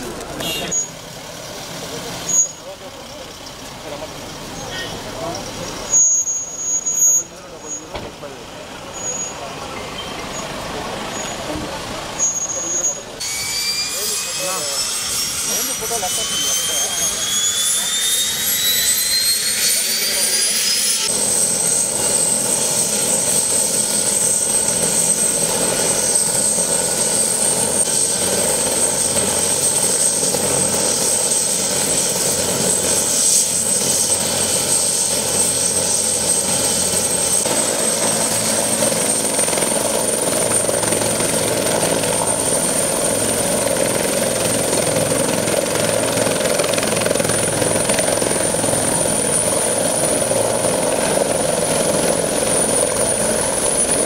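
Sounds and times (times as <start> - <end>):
helicopter rotor and engine: 0.0 - 54.0
high turbine whine: 11.8 - 54.0.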